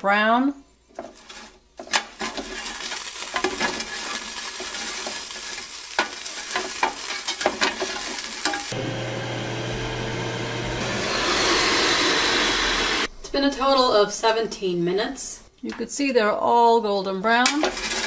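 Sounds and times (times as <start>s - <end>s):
tongs scraping fries in basket: 1.0s - 8.7s
fan whirring: 3.3s - 13.1s.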